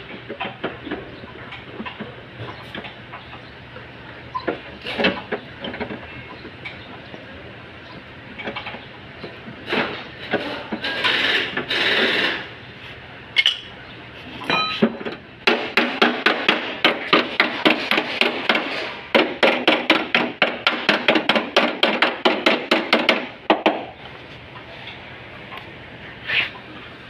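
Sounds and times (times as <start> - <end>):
hammer beating sheet metal: 15.4 - 23.8.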